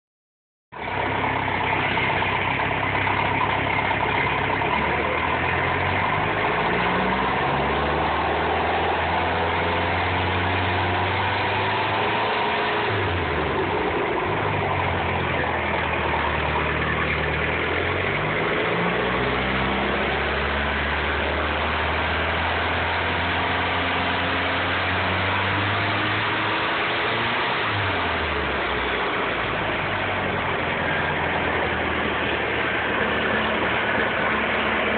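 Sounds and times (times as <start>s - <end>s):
boat engine idling: 0.7s - 6.6s, 13.2s - 18.7s.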